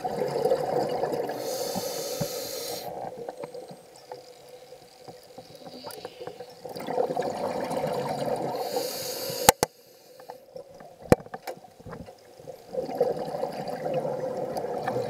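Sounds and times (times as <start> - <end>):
regulator hiss: 1.3 - 3.0, 8.6 - 10.4
regulator bubbles exhaling: 5.6 - 9.6, 12.7 - 15.0
sharp clicks: 9.3 - 9.7.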